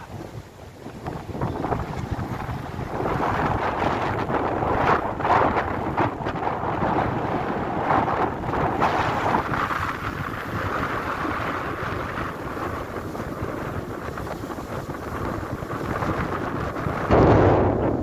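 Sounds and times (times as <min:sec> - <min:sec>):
shallow sea water washing: 0:00.0 - 0:17.1
wind buffeting microphone: 0:00.0 - 0:18.0.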